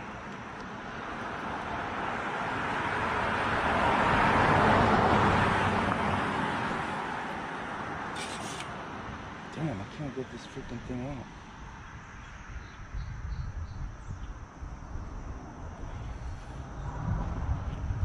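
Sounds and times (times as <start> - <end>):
car driving past: 1.4 - 7.5, 15.9 - 18.0.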